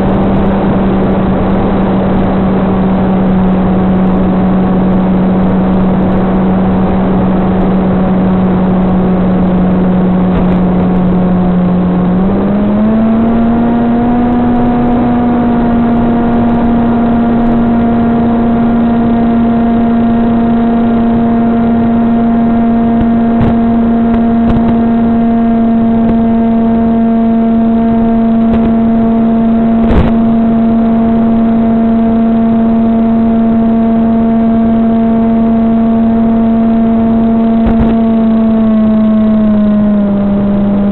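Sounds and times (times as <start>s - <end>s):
electric motor propeller whine: 0.0s - 40.9s.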